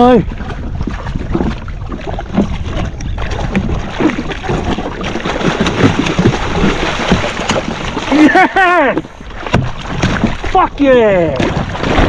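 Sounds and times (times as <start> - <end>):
wind on microphone: 0.0 - 8.1
knocks and splashes: 0.0 - 12.0
water sloshing: 0.0 - 12.0.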